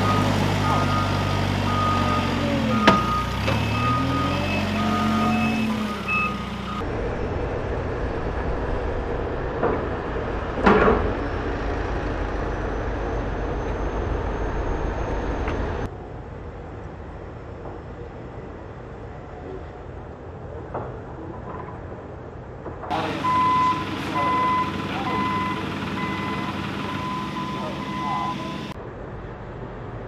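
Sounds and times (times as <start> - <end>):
reverse alarm beeping: 0.0 - 6.8, 22.9 - 28.8
diesel engine running: 0.0 - 16.2, 22.9 - 28.8.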